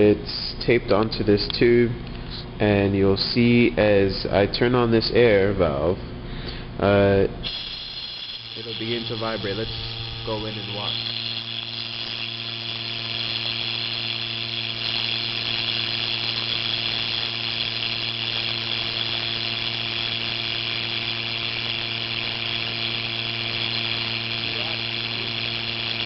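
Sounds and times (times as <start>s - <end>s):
pitched buzz of vibrating folds: 7.4s - 26.0s.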